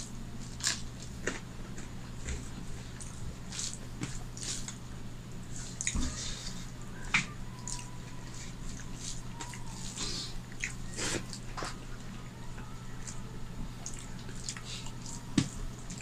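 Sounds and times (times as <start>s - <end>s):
chewing mouth sounds: 7.6s - 11.8s, 13.8s - 16.0s.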